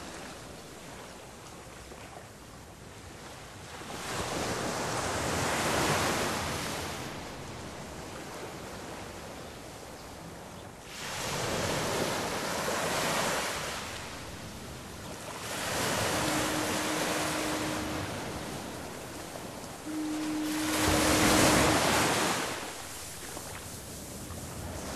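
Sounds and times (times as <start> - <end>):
ocean surf: 3.6 - 9.3, 10.4 - 24.9
steady low tone: 14.0 - 23.6.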